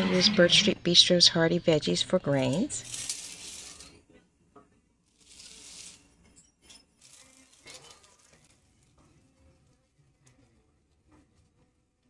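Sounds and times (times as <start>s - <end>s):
dry grains poured into metal bowl: 2.8s - 4.0s, 5.2s - 6.2s, 7.0s - 8.6s.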